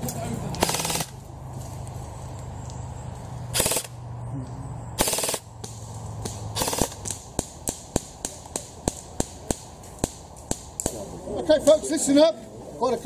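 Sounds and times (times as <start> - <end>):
airsoft rifle full-auto bursts: 0.6 - 1.2, 3.5 - 4.0, 5.0 - 5.5, 6.6 - 7.0.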